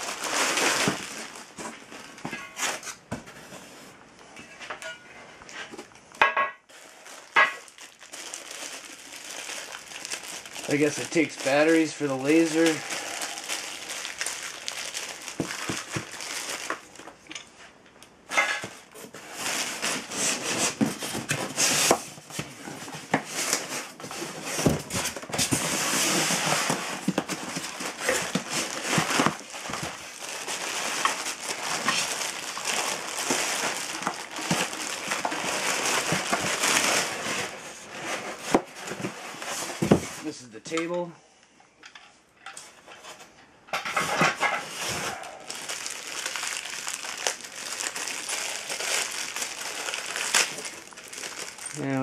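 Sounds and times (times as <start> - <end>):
plastic wrapping crinkling: 0.0 - 3.8, 6.7 - 17.5, 18.3 - 40.4, 43.9 - 52.0
foam packing rubbing: 18.9 - 40.4.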